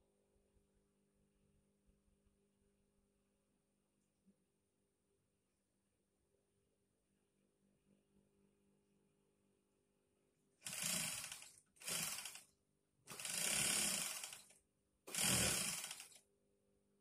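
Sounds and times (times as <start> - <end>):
sewing machine stitching: 10.6 - 12.5, 13.1 - 16.2.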